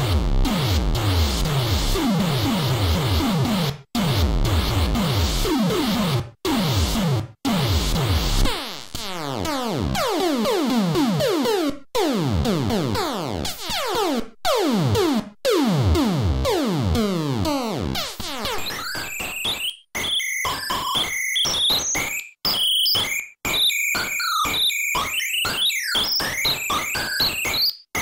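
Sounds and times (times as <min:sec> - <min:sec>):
chiptune arpeggio blips: 0:17.4 - 0:28.0.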